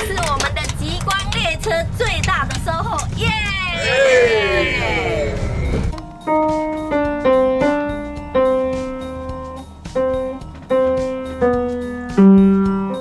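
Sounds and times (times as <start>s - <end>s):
upright piano melody: 6.0s - 13.0s.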